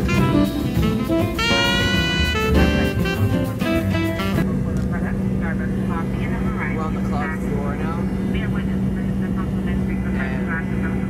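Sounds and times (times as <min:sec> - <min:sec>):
horn melody: 0:00.0 - 0:04.5
upbeat jazz instrumental: 0:00.0 - 0:04.5.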